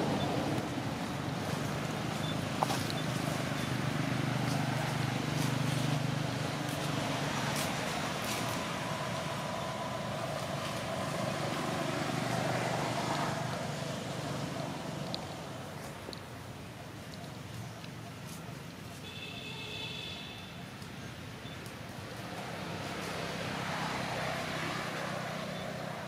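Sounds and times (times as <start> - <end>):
vehicle engine humming: 0.0 - 19.0, 20.4 - 26.0
faint clicks: 17.0 - 18.8.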